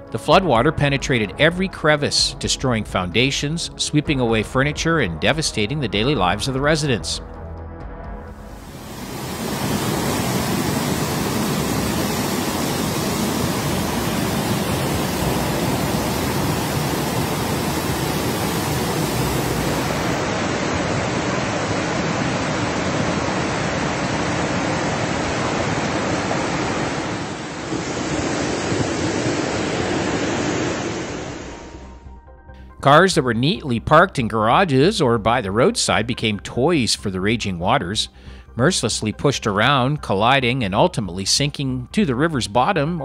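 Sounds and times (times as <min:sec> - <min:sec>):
floodwater rushing: 0:08.5 - 0:31.8.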